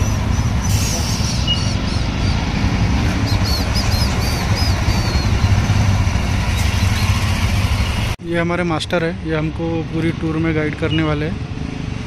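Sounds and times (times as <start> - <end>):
motorcycle engines idling: 3.0 - 8.2.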